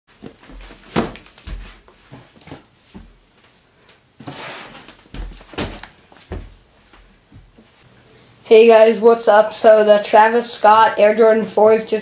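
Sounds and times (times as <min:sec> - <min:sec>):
cardboard box knocks and thumps: 0:00.2 - 0:01.6, 0:04.2 - 0:06.5
rustling scrape: 0:04.2 - 0:05.0.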